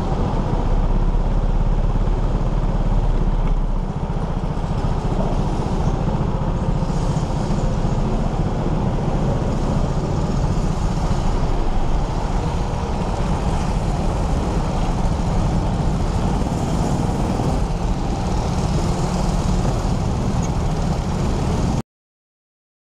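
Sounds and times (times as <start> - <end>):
go-kart engine running: 0.0 - 21.8.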